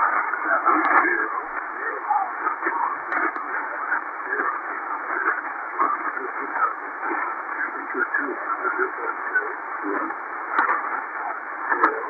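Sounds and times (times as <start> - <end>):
garbled radio voice: 0.0 - 12.0
radio static hiss: 0.0 - 12.0.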